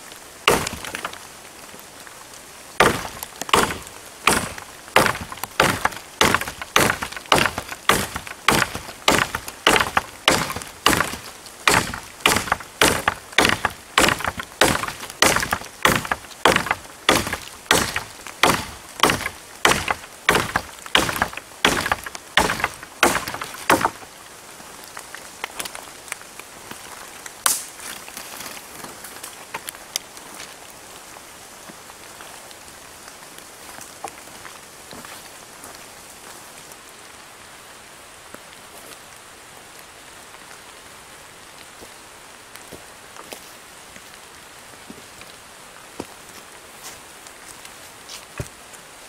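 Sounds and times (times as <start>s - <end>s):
rain on leaves: 0.0s - 49.0s
hand saw cutting wood: 2.8s - 24.0s
sharp snap: 27.5s - 27.7s.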